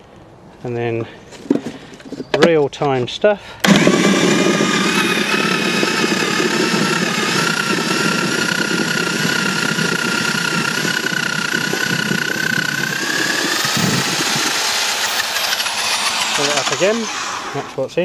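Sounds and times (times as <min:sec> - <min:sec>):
electric drill motor whining: 0:03.6 - 0:17.8
rotor grinding apples: 0:03.6 - 0:17.8.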